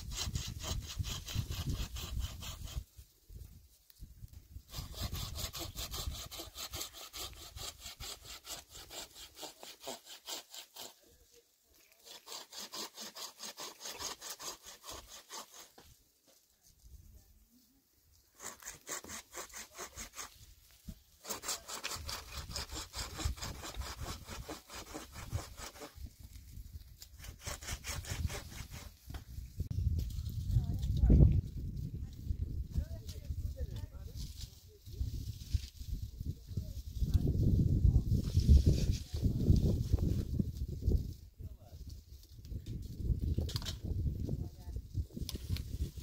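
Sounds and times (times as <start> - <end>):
hand saw cutting wood: 0.0 - 2.9, 4.7 - 11.2, 11.9 - 15.9, 18.3 - 20.4, 21.2 - 26.1, 27.0 - 29.2.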